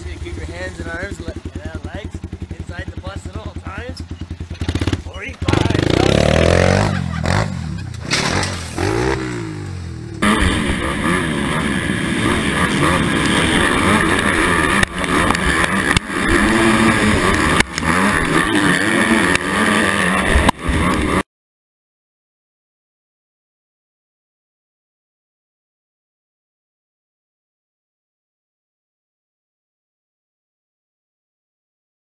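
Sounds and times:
dirt bike engine revving: 0.0s - 21.2s
motocross bikes at high revs: 0.0s - 21.2s.

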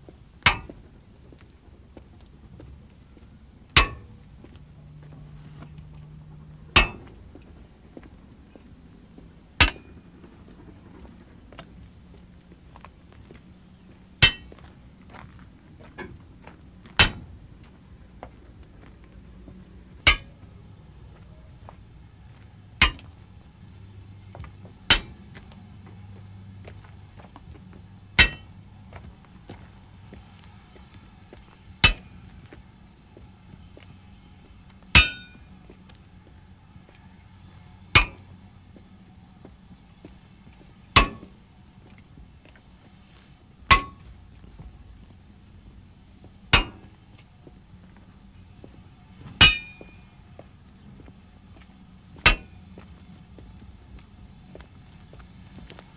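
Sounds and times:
faint low hum: 0.0s - 55.9s
hammer clinking on railway wheels: 0.5s - 0.8s, 3.8s - 4.1s, 6.8s - 7.2s, 9.6s - 10.0s, 14.2s - 15.3s, 16.9s - 17.5s, 20.0s - 20.4s, 22.8s - 23.2s, 24.8s - 25.5s, 28.2s - 28.8s, 31.8s - 32.3s, 34.9s - 35.6s, 37.9s - 38.3s, 41.0s - 41.4s, 43.7s - 44.1s, 46.5s - 47.0s, 49.4s - 50.1s, 52.2s - 52.6s.

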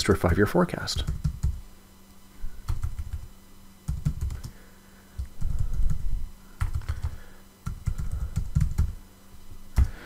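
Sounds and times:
faint low hum: 0.0s - 10.0s
typing on computer keyboard: 1.0s - 1.6s, 2.6s - 3.3s, 3.9s - 4.6s, 6.6s - 9.0s.

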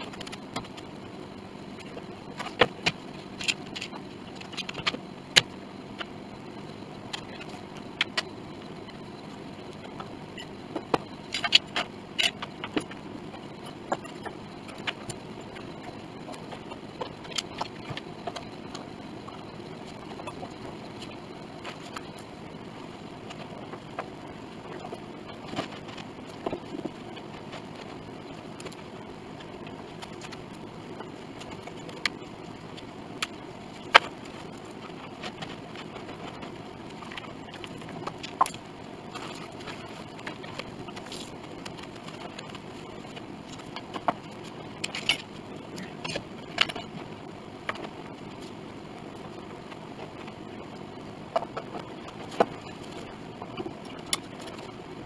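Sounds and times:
steady background noise: 0.0s - 55.0s.

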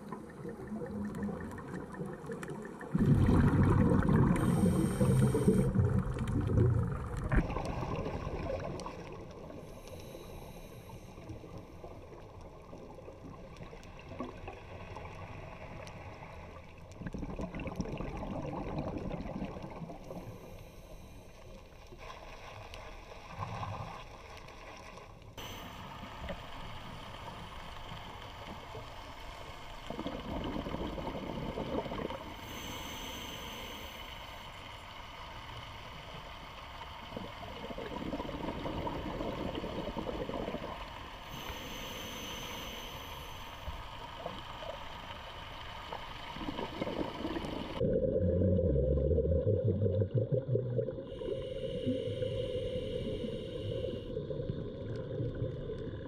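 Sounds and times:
exhaust bubbles rumbling: 0.0s - 9.1s, 46.3s - 56.0s
diver inhaling through regulator: 4.0s - 5.8s, 9.5s - 11.5s, 32.0s - 34.6s, 41.2s - 44.0s, 50.9s - 54.2s.

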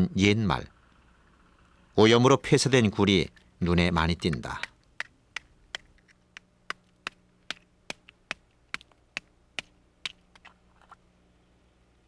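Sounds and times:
stone knocking on oyster shells: 4.2s - 10.5s.

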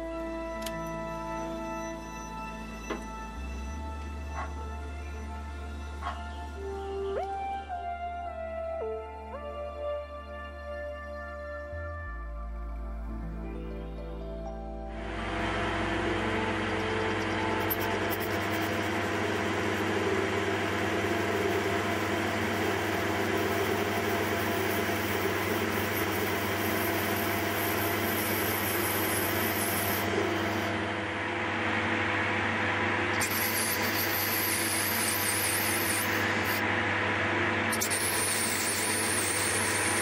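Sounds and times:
lathe motor humming: 15.0s - 40.0s.

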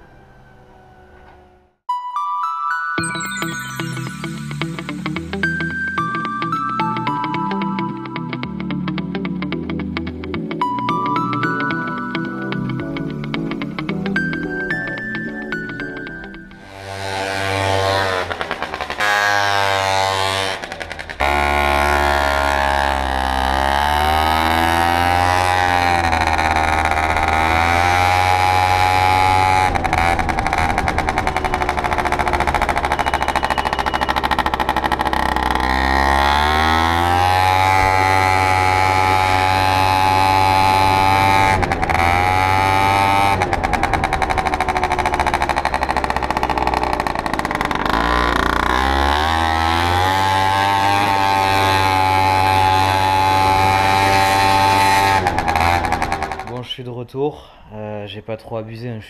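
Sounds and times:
scooter engine revving: 11.4s - 56.6s.

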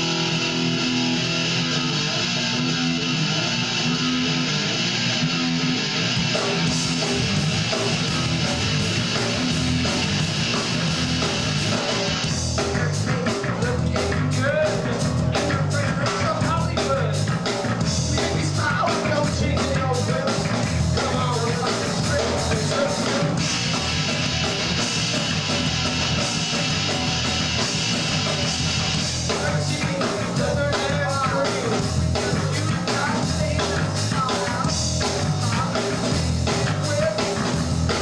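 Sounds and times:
rock band playing live: 0.0s - 38.0s
person singing: 11.7s - 17.3s, 17.9s - 23.4s, 29.2s - 38.0s.

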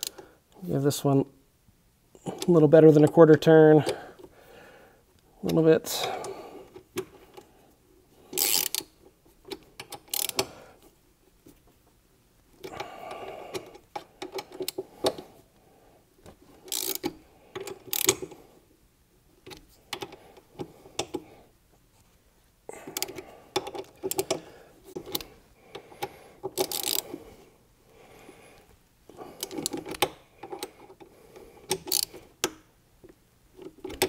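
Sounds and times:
ratchet wrench clicking: 8.4s - 8.9s, 9.8s - 10.5s, 16.7s - 18.3s, 26.5s - 27.1s, 31.7s - 32.6s.

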